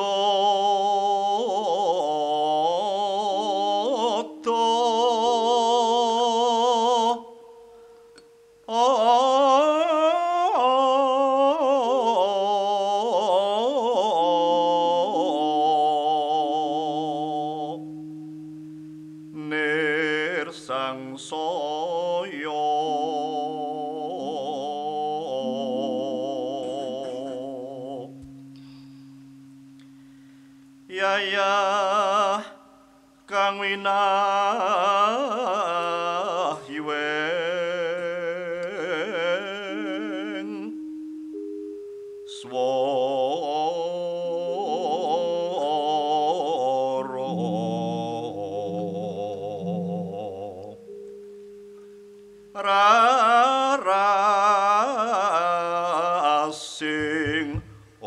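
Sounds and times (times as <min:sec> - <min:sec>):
soft sustained low notes: 0:14.8 - 0:33.2, 0:46.4 - 0:52.9
woman singing with vibrato: 0:19.2 - 0:28.2, 0:47.0 - 0:51.0.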